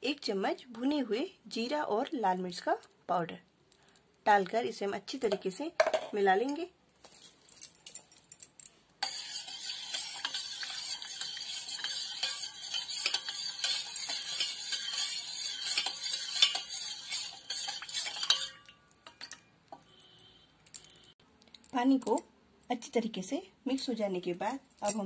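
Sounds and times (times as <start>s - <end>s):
spoon stirring in a steel bowl: 9.0s - 20.1s.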